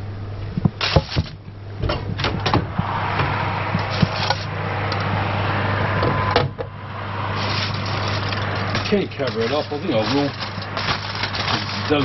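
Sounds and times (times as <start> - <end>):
low steady hum: 0.0 - 12.0
oven rushing noise: 0.6 - 12.0
oven door knocks and clunks: 1.8 - 4.2.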